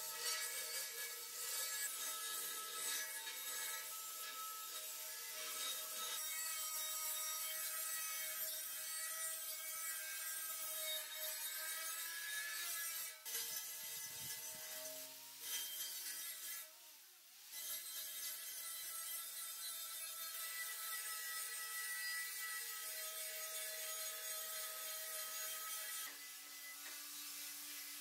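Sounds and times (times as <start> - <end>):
angle grinder grinding metal: 0.0 - 16.8, 17.5 - 28.0.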